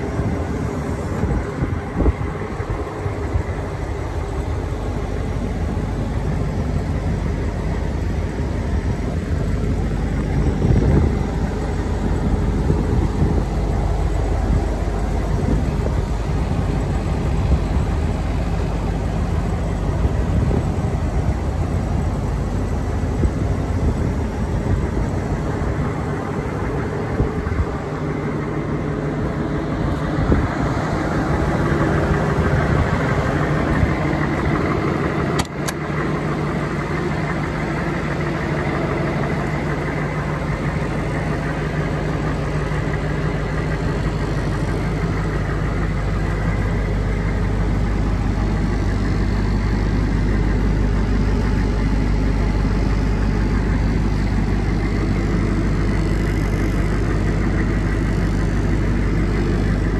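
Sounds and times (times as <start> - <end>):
diesel engine idling: 0.0 - 59.9
sharp click: 35.4 - 35.8.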